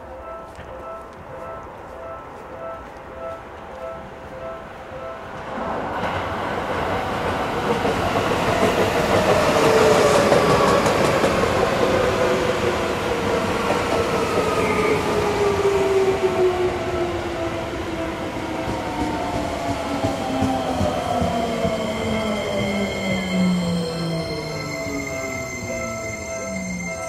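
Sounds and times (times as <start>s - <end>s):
train wheels clacking: 5.4s - 15.8s, 18.0s - 27.0s.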